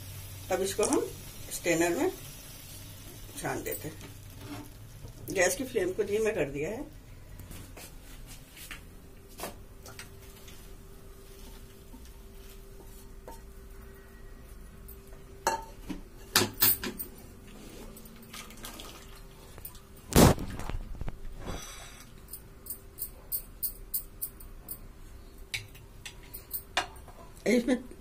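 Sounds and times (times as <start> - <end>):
utensils clattering in metal pan: 15.5 - 17.2.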